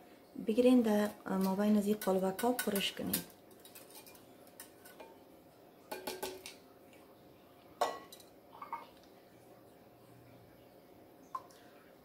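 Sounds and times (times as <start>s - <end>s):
kitchenware clinking and knocking: 2.0s - 5.2s, 5.9s - 6.6s, 7.8s - 8.9s.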